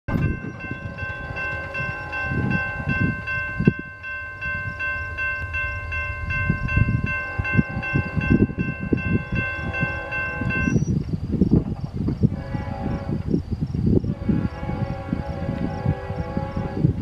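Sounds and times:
crossing bell ringing: 0.1s - 10.9s
freight train rumble: 0.1s - 17.0s.

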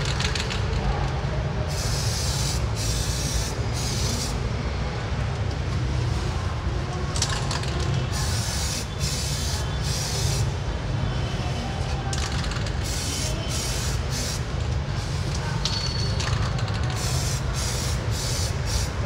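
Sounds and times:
spray can hissing: 1.7s - 4.4s, 8.1s - 10.5s, 12.8s - 15.2s, 16.9s - 19.0s.

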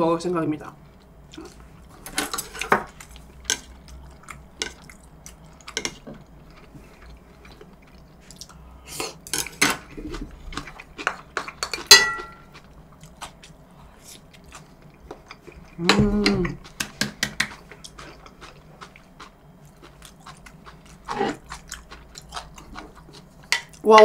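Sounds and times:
cutlery clinking against dishes: 11.6s - 12.5s.

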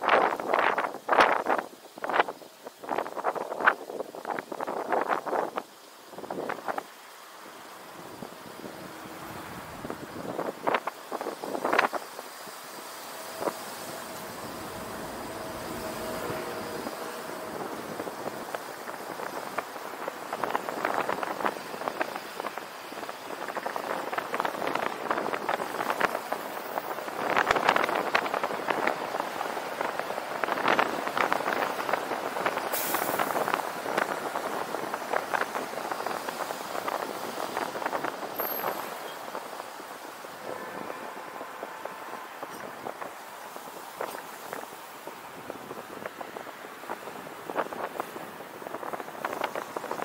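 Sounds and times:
road and wind noise: 0.0s - 50.0s
tyre and traffic noise: 0.0s - 50.0s
brief high hiss: 32.7s - 33.4s.

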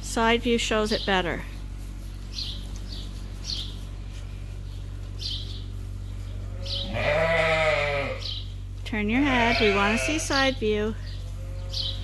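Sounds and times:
small birds chirping: 0.0s - 12.0s
sheep bleating: 6.4s - 8.4s, 9.2s - 10.5s, 11.2s - 12.0s.

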